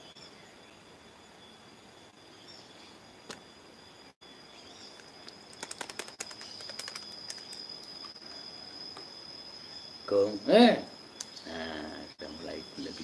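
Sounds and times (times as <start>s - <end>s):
high-pitched insect drone: 0.0s - 13.0s
puppet clicks and taps: 5.3s - 7.7s.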